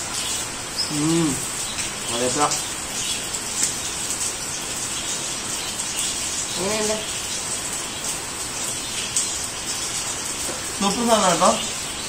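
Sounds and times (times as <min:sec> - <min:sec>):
rain falling: 0:00.0 - 0:12.0
person humming: 0:00.9 - 0:01.4.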